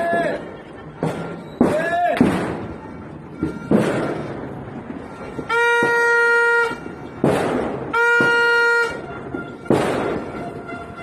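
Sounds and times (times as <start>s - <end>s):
firework bang: 1.0s - 2.8s, 3.4s - 11.0s
long horn blasts: 5.0s - 7.2s, 7.9s - 11.0s.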